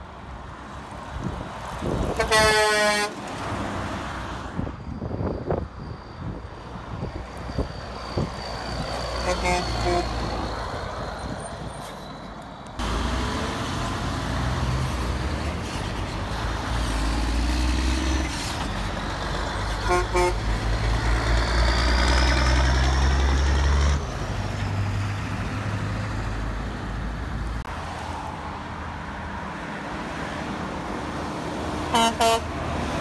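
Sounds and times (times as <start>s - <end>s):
dump truck diesel engine rumble: 1.2s - 27.7s
horn beeps: 7.6s - 10.6s.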